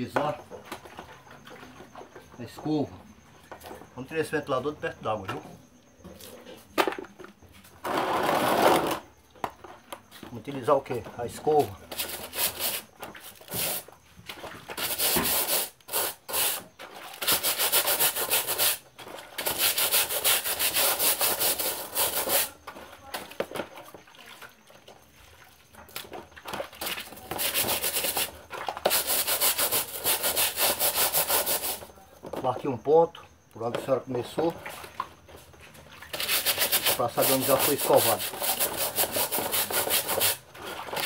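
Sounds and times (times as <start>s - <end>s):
brush scrubbing fan grille: 28.9s - 31.9s, 36.1s - 40.4s.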